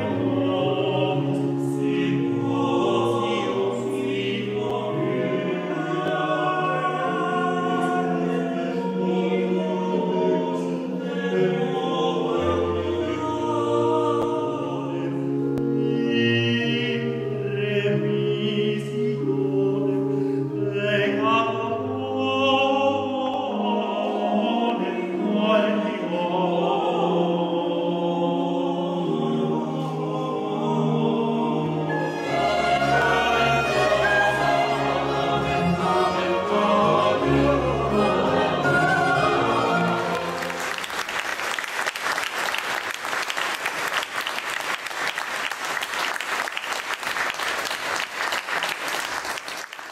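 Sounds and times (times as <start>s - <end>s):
mixed choir singing: 0.0s - 41.6s
audience applause: 40.0s - 49.9s.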